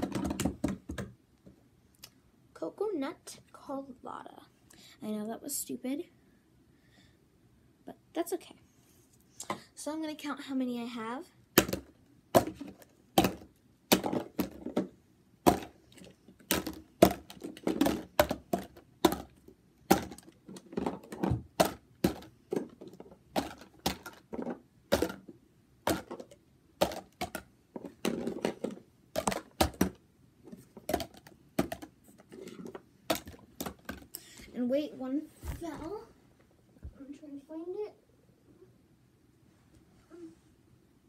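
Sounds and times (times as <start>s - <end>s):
plastic bottles clacking: 11.6s - 14.9s, 15.5s - 25.3s, 25.9s - 34.2s.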